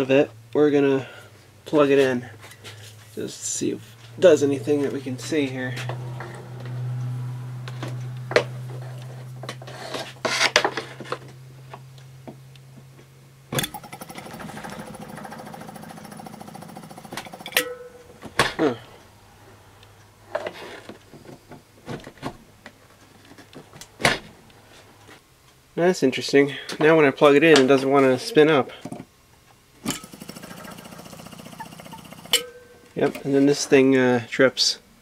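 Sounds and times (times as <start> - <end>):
mains hum: 0.0 - 6.3, 7.0 - 35.0
harsh rattling buzz: 13.5 - 18.1, 29.8 - 32.7.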